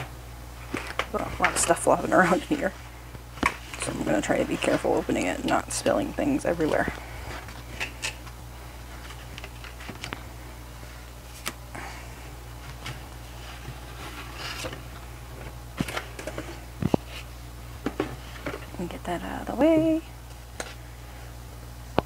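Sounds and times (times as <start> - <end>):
cards sliding and rustling: 11.3 - 11.6, 12.7 - 14.9.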